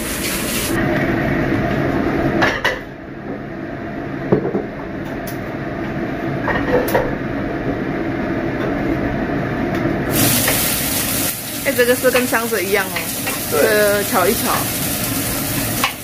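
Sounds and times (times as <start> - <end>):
steady low hum: 0.8 - 10.2
frying pan knocking and clanking: 10.4 - 10.7, 12.1 - 13.5, 15.5 - 16.0.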